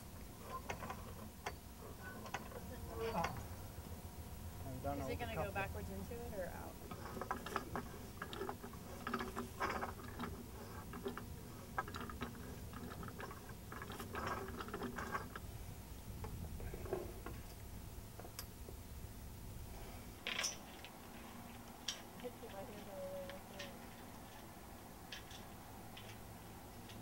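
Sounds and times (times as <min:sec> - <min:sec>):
pipe wrench clicking and scraping on pipe: 0:06.9 - 0:15.4.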